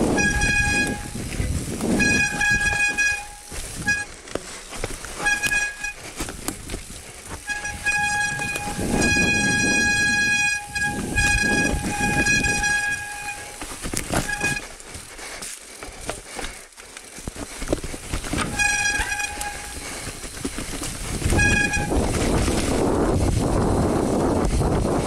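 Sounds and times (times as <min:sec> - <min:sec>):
bike brakes squealing: 0:00.0 - 0:04.1, 0:05.2 - 0:06.3, 0:07.3 - 0:14.8, 0:18.2 - 0:22.8
bike rattling: 0:00.0 - 0:25.0.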